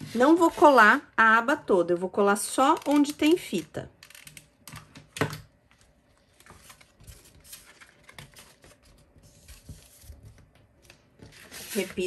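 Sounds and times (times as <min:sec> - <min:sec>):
paper rustling: 0:05.8 - 0:12.0.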